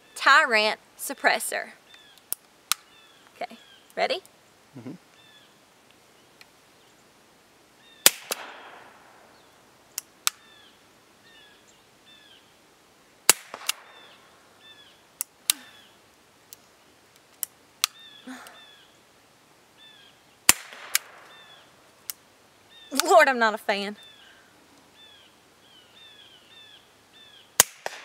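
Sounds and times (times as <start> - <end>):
suppressed revolver shots: 8.0 - 9.4, 13.3 - 14.2, 20.5 - 21.5, 27.6 - 28.0.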